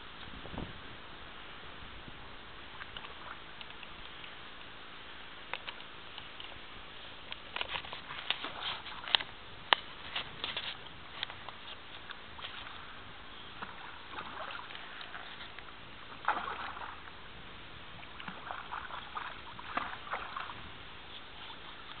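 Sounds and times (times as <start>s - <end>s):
fish splashing at water surface: 16.2s - 17.0s.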